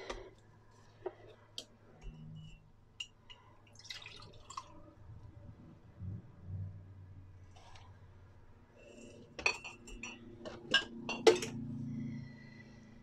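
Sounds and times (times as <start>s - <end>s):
glass and metal clinks: 9.4s - 11.6s.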